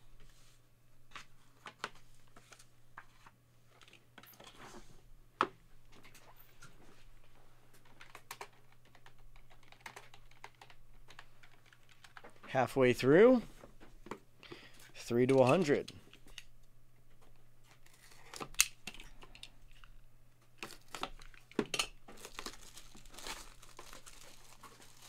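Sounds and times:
typing on keyboard: 7.8s - 12.3s.

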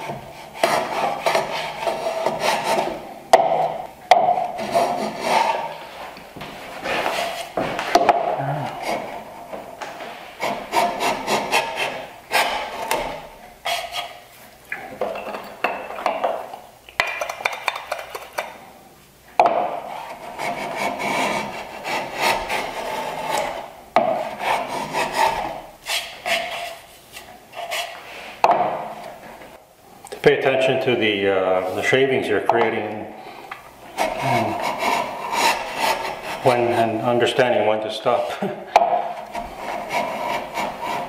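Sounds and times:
block plane shaving wood: 0.0s - 6.0s, 6.7s - 14.2s, 19.6s - 29.0s, 33.9s - 37.0s, 38.2s - 41.0s.

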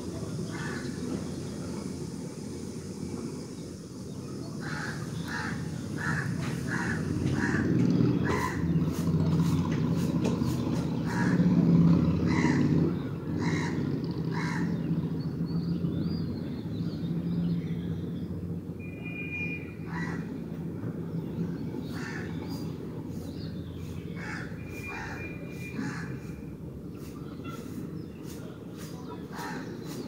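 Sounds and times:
crows cawing: 0.5s - 1.0s, 4.6s - 8.7s, 11.0s - 11.6s, 12.2s - 12.8s, 13.4s - 14.8s, 19.9s - 20.3s, 21.8s - 22.7s, 24.2s - 26.4s, 29.3s - 29.8s.

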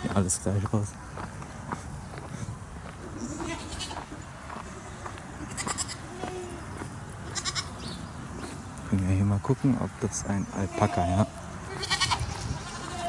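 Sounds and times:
goats bleating: 3.1s - 4.2s, 5.4s - 7.8s, 10.5s - 13.0s.

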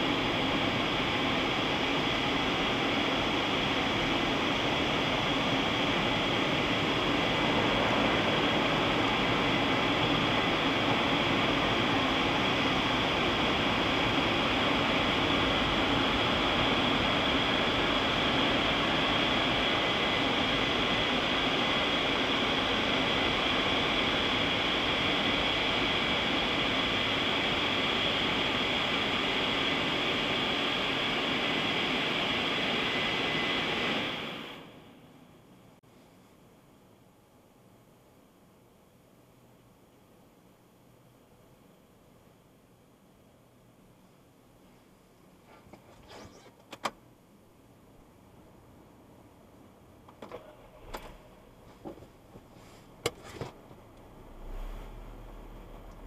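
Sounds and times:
car wash blowers rushing air: 0.0s - 34.9s, 50.2s - 56.0s.

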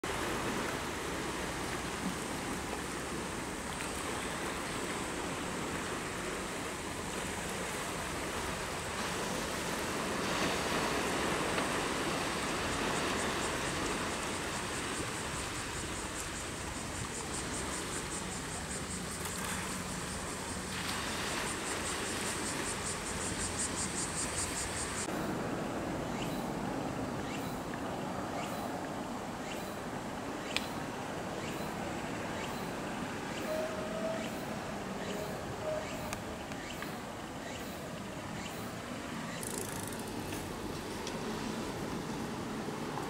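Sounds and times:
surf washing against rocks: 0.0s - 27.1s, 30.0s - 43.0s.

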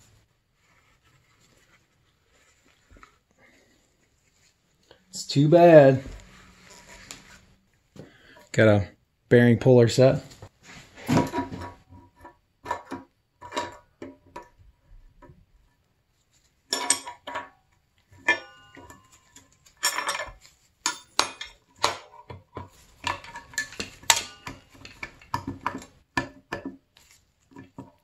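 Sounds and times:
metal tools clinking and scraping: 5.2s - 7.5s, 10.7s - 14.5s, 16.7s - 28.0s.

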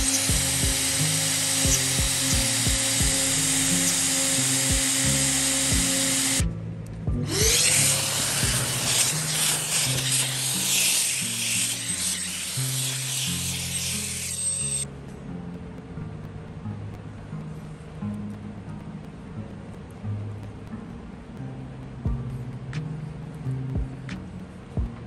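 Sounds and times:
hiss of wood being cut: 0.0s - 6.4s, 7.3s - 14.8s
router spindle whine: 0.0s - 6.5s, 7.2s - 14.8s
background music: 0.0s - 25.0s.

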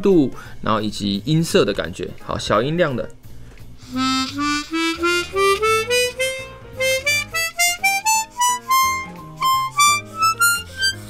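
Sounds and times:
harmonica playing rising scale: 3.8s - 11.0s.

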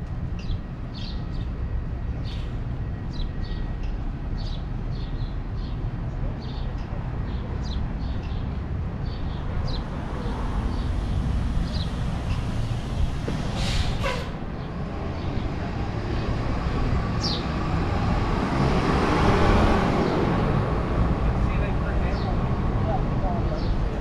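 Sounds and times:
street traffic rumble: 0.0s - 24.0s
short hiss: 13.5s - 14.2s.

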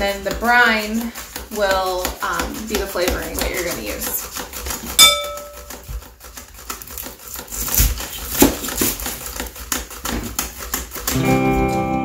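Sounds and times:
slicing strokes: 0.3s - 11.1s
sharp ringing clink: 5.0s - 5.7s.

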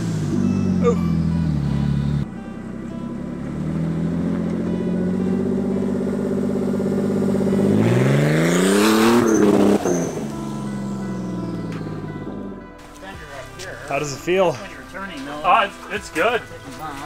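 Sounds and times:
truck engine revving: 0.0s - 12.8s.

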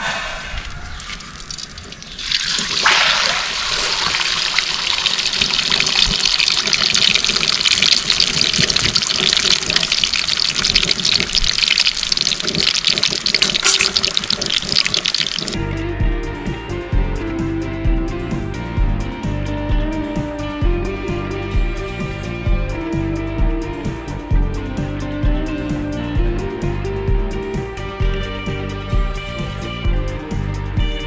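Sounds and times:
chicken sizzling in hot oil: 1.2s - 15.6s.

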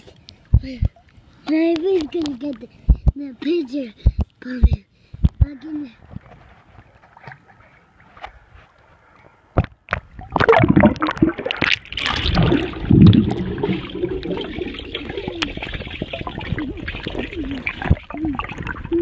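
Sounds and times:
pool water splashing: 6.3s - 8.5s, 10.1s - 19.0s
muffled underwater gurgling: 12.0s - 19.0s.

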